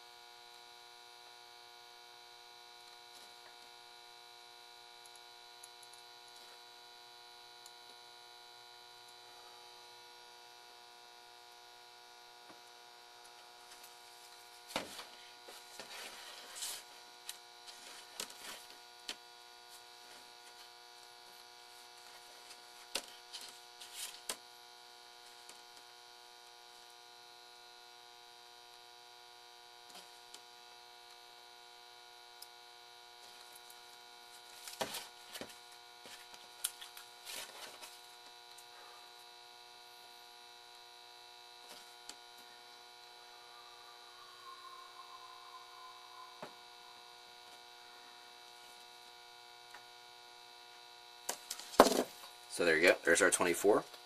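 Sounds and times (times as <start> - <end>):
faint electrical mains hum: 0.0 - 54.0.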